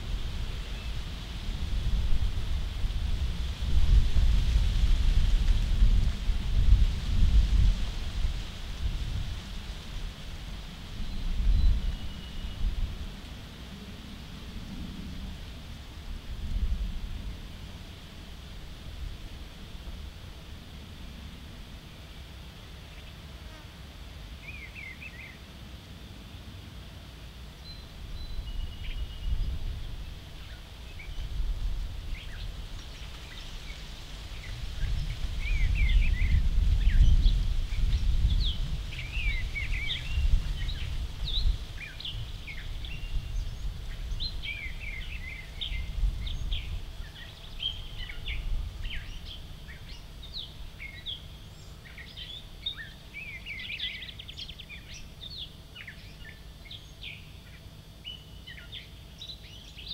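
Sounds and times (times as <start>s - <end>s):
wind buffeting microphone: 0.0s - 13.2s, 28.0s - 51.1s
songbirds chirping: 0.0s - 59.9s.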